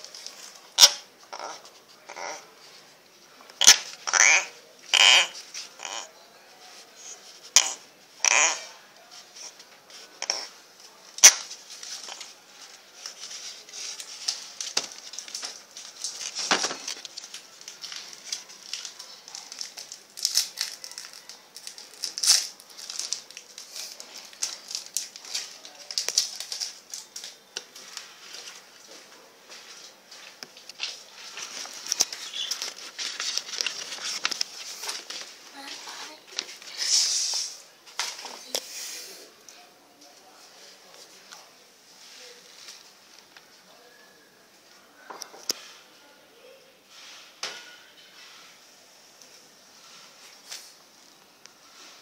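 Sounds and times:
rustling against a basket: 0.0 - 39.4.

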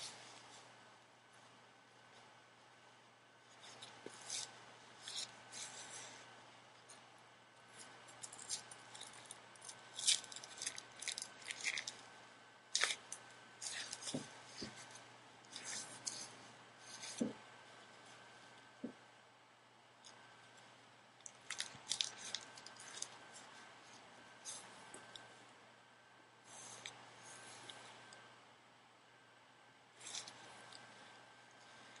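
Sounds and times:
gloves rubbing and rustling: 3.4 - 18.9.

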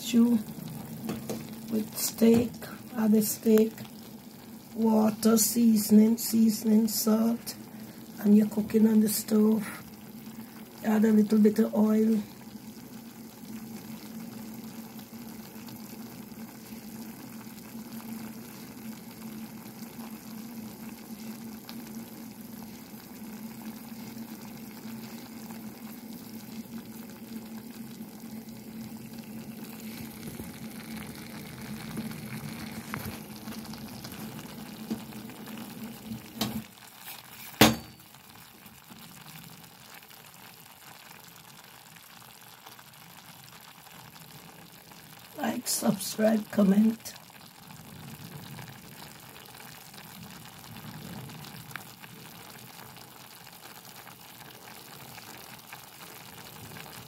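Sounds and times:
stew simmering and sizzling: 0.0 - 57.0
sharp knock: 37.6 - 38.0.

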